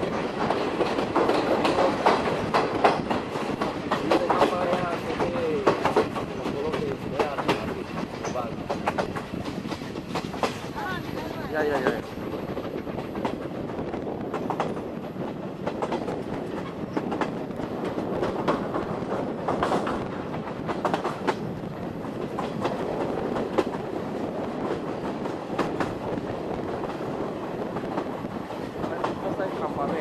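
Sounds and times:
train wheels rumbling on track: 0.0 - 30.0
wheels clacking over rail joints: 0.0 - 30.0.

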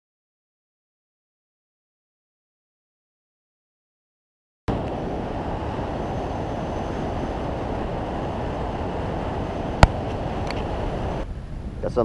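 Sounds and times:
wind and water rushing: 4.7 - 12.0
wind buffeting microphone: 4.7 - 12.0.

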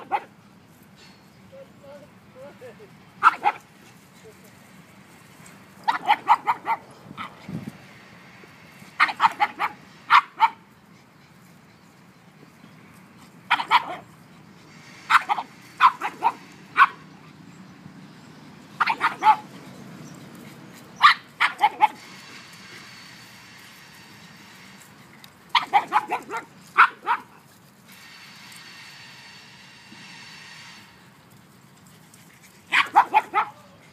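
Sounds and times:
dogs barking: 0.0 - 0.4, 3.2 - 3.7, 5.8 - 7.4, 9.0 - 10.7, 13.5 - 14.2, 15.1 - 17.4, 18.7 - 19.8, 21.0 - 22.1, 25.5 - 27.4, 32.7 - 33.9.

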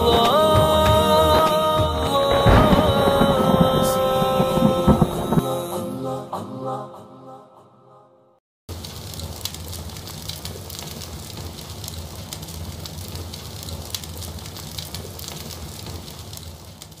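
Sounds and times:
fire crackling: 0.0 - 5.9, 8.7 - 17.0
person singing: 0.0 - 8.2.

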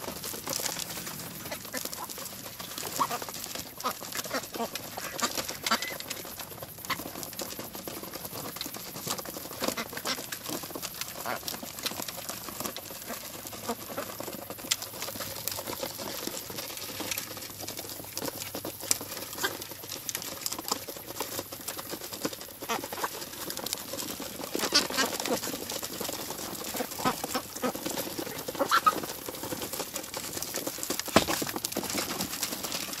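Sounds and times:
duck bills pattering on ground: 0.0 - 33.0
ducks quacking: 1.4 - 6.2, 24.1 - 29.2.

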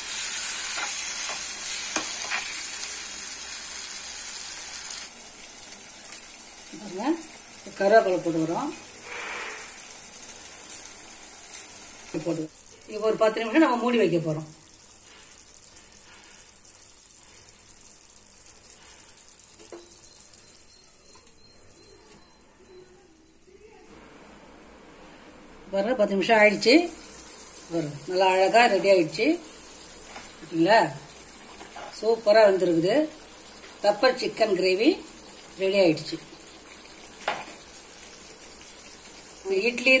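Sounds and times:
gravy sizzling in a pan: 0.0 - 21.9, 25.9 - 40.0
steel spoon scraping a pan: 0.2 - 2.7, 9.0 - 9.8.

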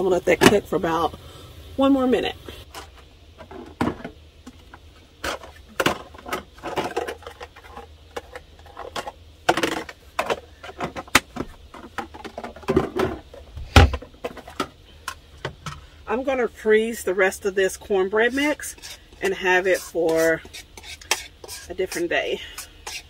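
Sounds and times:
plastic containers clicking and knocking: 5.2 - 15.8.

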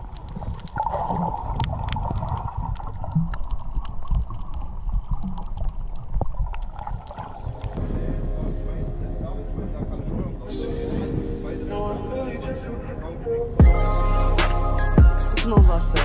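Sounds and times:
sharp underwater clicks: 0.0 - 7.9
underwater rumble of moving water: 0.0 - 13.6.

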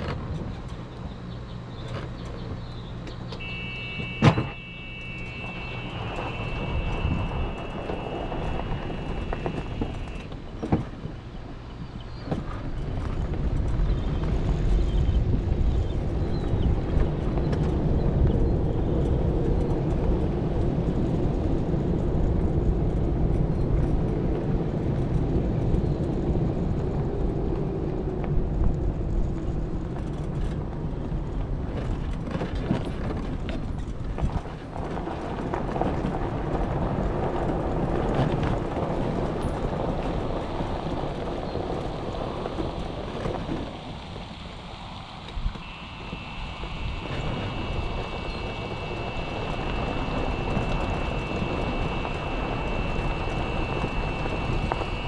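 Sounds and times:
faint motor whine: 0.0 - 55.0
motor and road rumble: 0.0 - 55.0
steady high beep: 3.4 - 10.2, 45.6 - 55.0.

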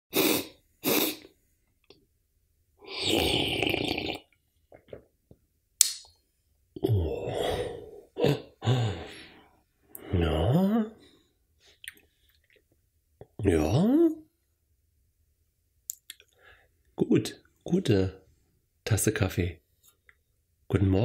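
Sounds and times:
man slurping coffee: 0.1 - 1.3, 2.8 - 5.0
sharp click: 5.8 - 6.2
man groaning and sighing: 6.8 - 11.0.

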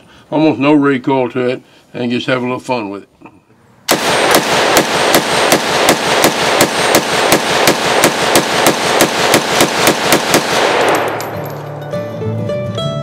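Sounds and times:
rifle shots with echo: 3.9 - 11.8.

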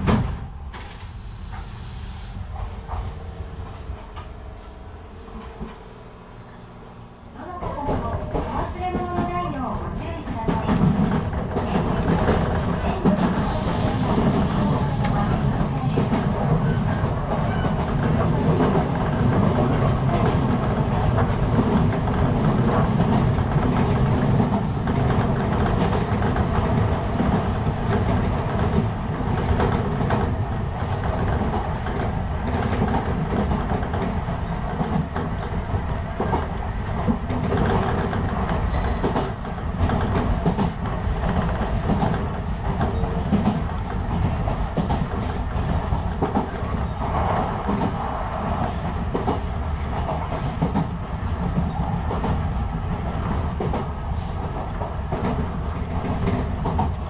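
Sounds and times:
train wheels rumbling on rail: 0.0 - 57.0
clacks over rail joints: 7.5 - 13.4, 15.9 - 48.0, 48.6 - 53.9, 54.6 - 57.0.

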